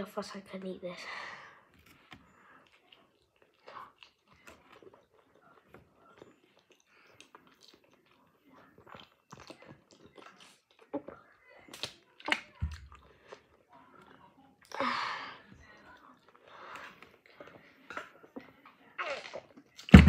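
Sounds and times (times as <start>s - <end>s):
chewing and biting food: 1.7s - 14.7s
food crunching: 1.7s - 14.7s.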